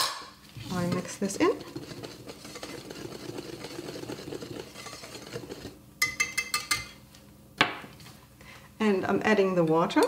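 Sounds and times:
whisk scraping in glass bowl: 0.6 - 7.0.

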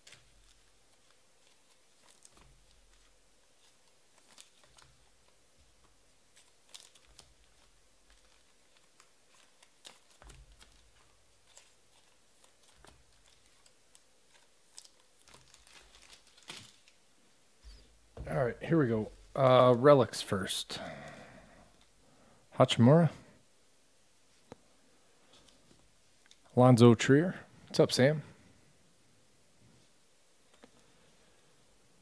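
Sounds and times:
trading cards rustling and clicking: 0.0 - 17.0.

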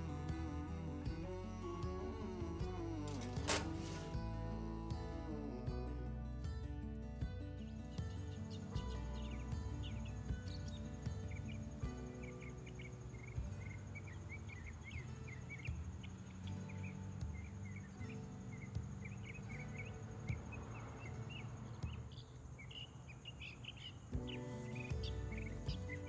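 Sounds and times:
soft background music: 0.0 - 26.0
birds chirping: 7.6 - 26.0.

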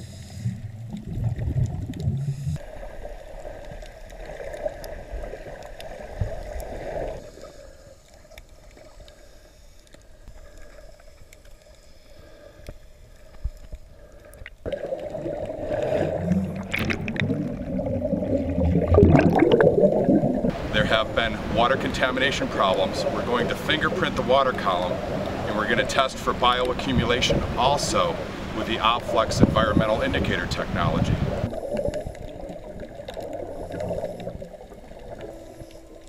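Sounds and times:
muffled underwater noise: 14.7 - 36.0.

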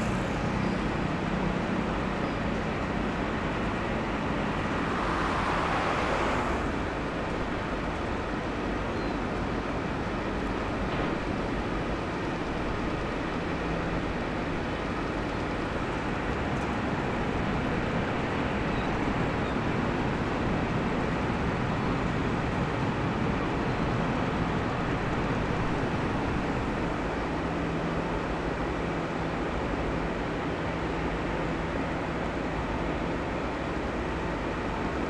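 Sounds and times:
ship machinery rumble: 0.0 - 35.0.

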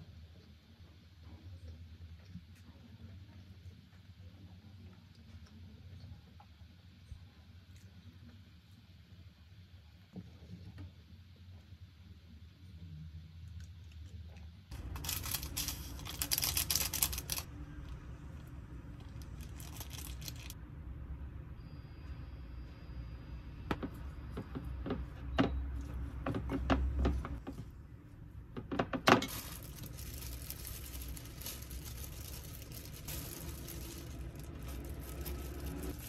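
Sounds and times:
low hum: 29.3 - 36.0.

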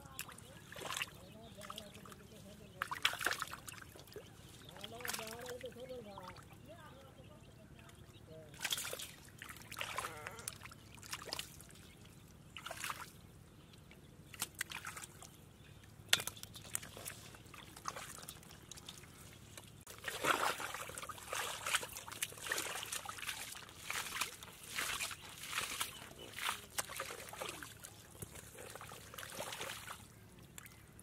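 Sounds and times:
hands splashing in shallow water: 0.1 - 2.2, 2.8 - 5.6, 8.6 - 10.1, 12.6 - 13.1, 14.3 - 15.3, 16.1 - 30.8.

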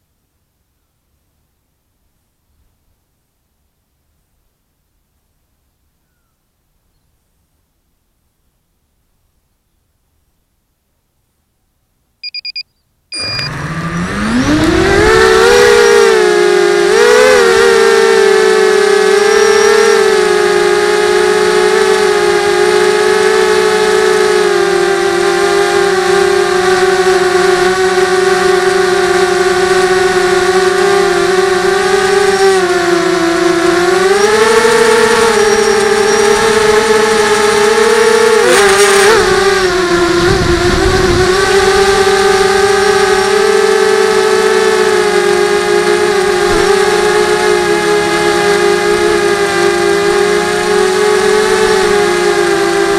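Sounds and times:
short beeps: 12.2 - 13.6
drone motors whining: 13.2 - 52.9.

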